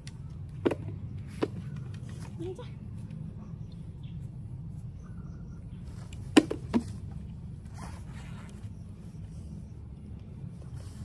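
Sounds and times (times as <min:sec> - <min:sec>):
steady low rumble: 0:00.0 - 0:11.0.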